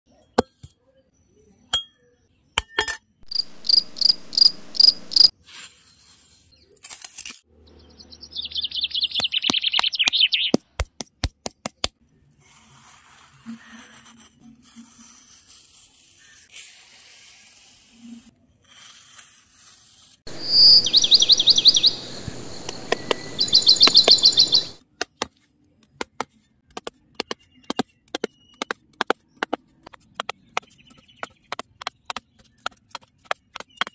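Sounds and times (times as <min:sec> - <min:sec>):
high chirping trills: 0:03.3 - 0:05.3, 0:07.6 - 0:10.6, 0:20.3 - 0:24.8
trowel scraping damp sand: 0:05.3 - 0:07.5, 0:12.2 - 0:20.3.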